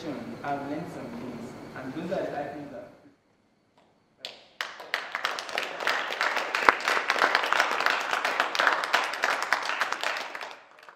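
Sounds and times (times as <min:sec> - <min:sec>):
group applauding: 0:04.2 - 0:10.9.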